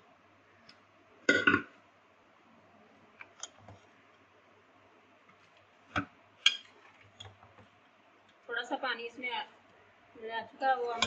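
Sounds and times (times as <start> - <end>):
knock on pot: 1.3 - 1.7.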